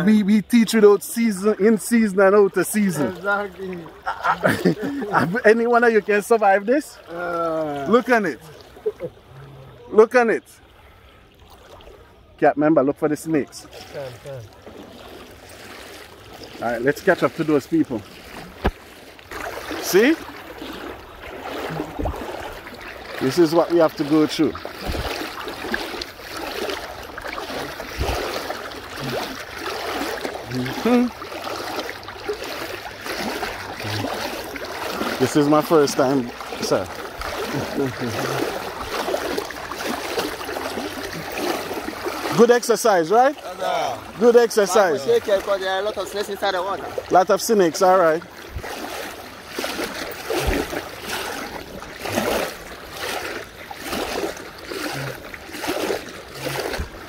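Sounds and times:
boots sloshing through water: 0.0 - 12.4, 13.2 - 57.0
person's voice: 30.5 - 31.1.

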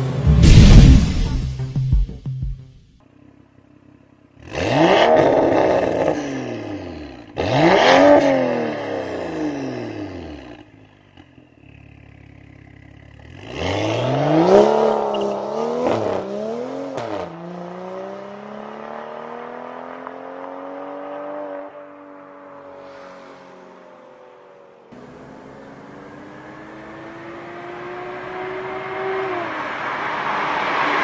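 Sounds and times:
car engine idling: 3.0 - 4.5, 10.6 - 13.5, 24.2 - 27.2
car driving off: 3.1 - 31.0
car engine revving: 3.2 - 31.0.

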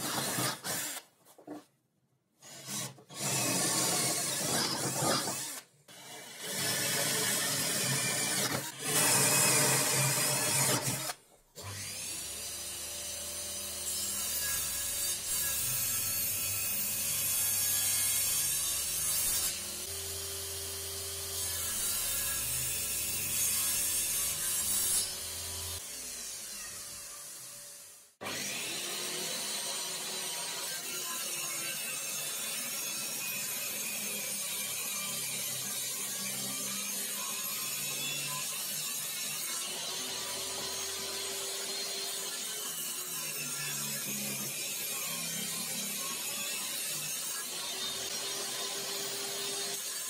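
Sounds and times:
cordless drill boring into wood: 0.0 - 1.0, 2.4 - 13.8, 46.9 - 49.9.

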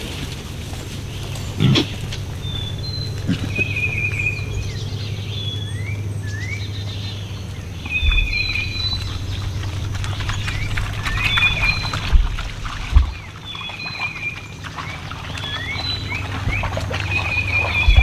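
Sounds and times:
hogs pattering over leaves: 0.0 - 18.0
steady low rumble: 0.0 - 18.0
birds whistling: 0.6 - 18.0
dull low thump: 7.9 - 13.4, 17.8 - 18.0.

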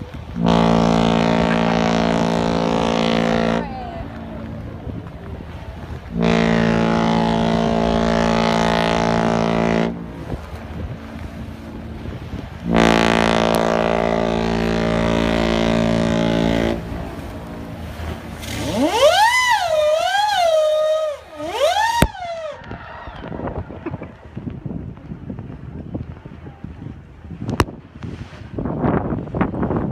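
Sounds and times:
ship horn blasts: 0.0 - 22.7.

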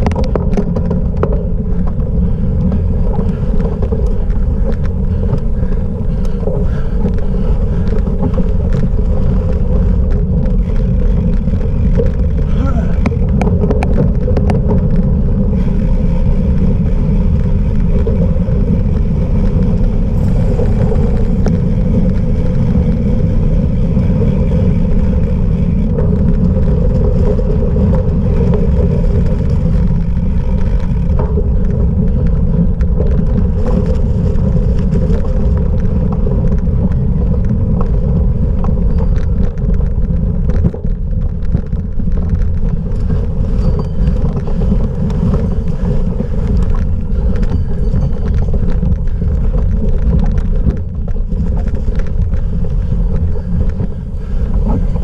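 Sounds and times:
bike rattles and clicks: 0.0 - 55.0
bike rolling over rough ground: 0.0 - 55.0
wind rumble on microphone: 0.0 - 55.0.

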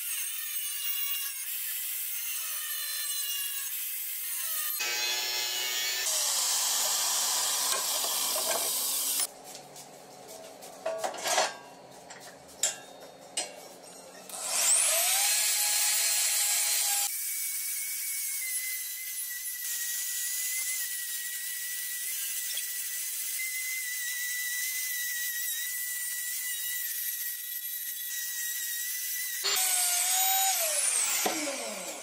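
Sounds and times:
angle grinder cutting steel: 0.0 - 9.3, 13.9 - 32.0
die grinder whining: 4.4 - 9.3, 29.3 - 32.0
metal blade scraping and knocking: 10.8 - 14.3.

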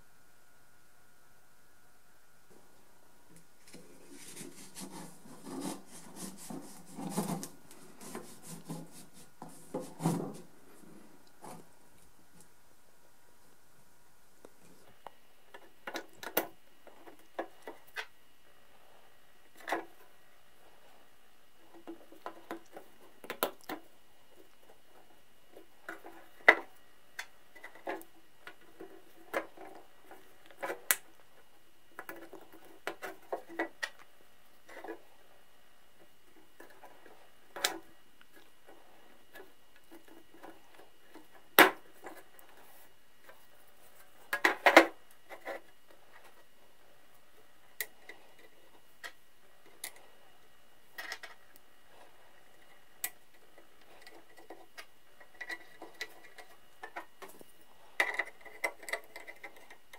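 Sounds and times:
metal scraping against wood: 3.7 - 11.7.

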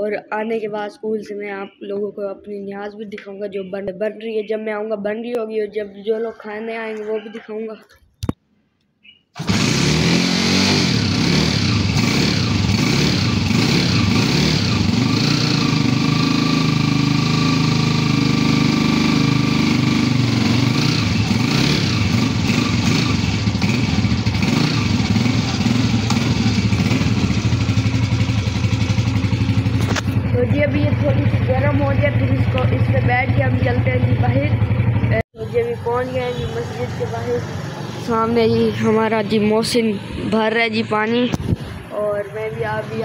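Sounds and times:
motorcycle engine running: 9.4 - 39.6.

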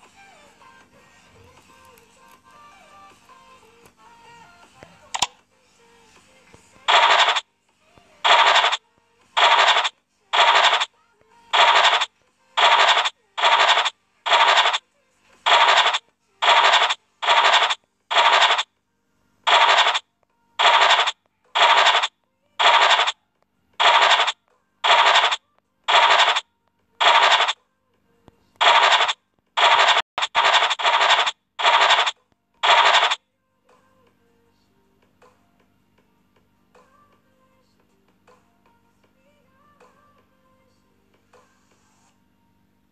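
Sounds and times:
scratching sound effect: 6.9 - 7.4, 8.2 - 8.8, 9.4 - 14.8, 15.5 - 18.7, 19.5 - 20.0, 20.6 - 23.2, 23.8 - 26.4, 27.0 - 27.6, 28.6 - 33.2.

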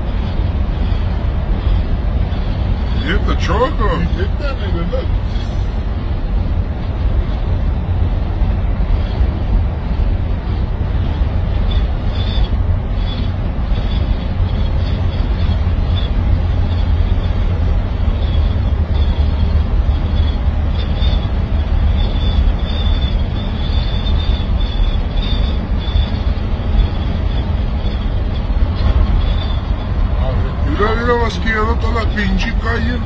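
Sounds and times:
vehicle road and engine rumble: 0.0 - 33.0.

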